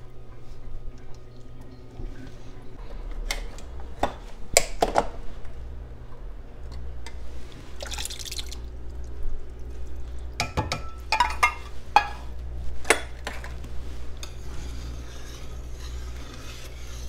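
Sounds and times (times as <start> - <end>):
whisk stirring thick soup: 7.0 - 17.0
liquid poured into a pot: 7.6 - 10.4
metal can clinking on pot: 10.4 - 12.1.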